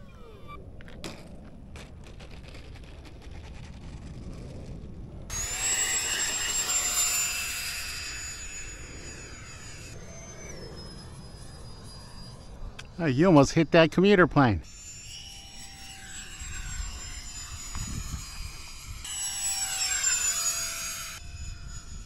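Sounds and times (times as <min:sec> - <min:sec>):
low rumble: 0:00.0 - 0:05.6
electric ducted-fan jet whine: 0:04.5 - 0:22.0.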